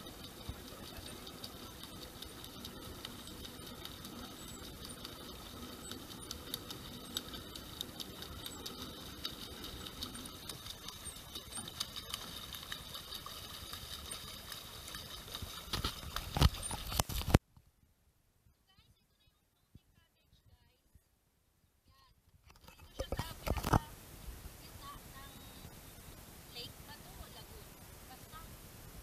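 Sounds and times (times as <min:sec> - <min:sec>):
small drips and ticks: 0:00.0 - 0:17.4, 0:22.5 - 0:23.9
water lapping and splashing: 0:00.0 - 0:17.4.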